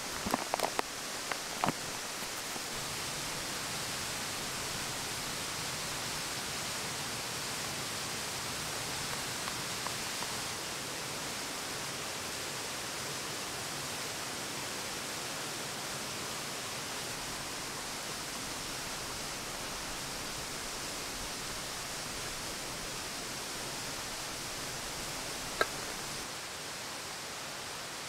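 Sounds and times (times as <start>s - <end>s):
foil bag crinkling: 0.0s - 2.8s
rushing stream and waterfall: 0.0s - 28.0s.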